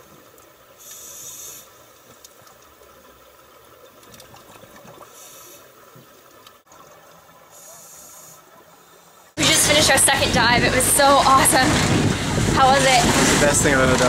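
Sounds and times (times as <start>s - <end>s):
underwater bubbling: 0.0s - 13.4s
faint clicks: 3.8s - 6.8s
regulator breath hisses: 7.6s - 8.4s.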